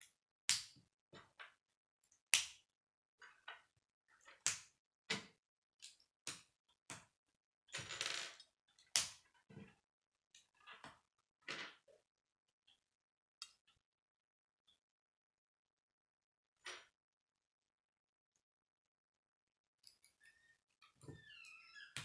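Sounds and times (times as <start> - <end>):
plastic pieces snapping together: 0.5 - 0.8, 2.3 - 2.6, 8.9 - 9.2.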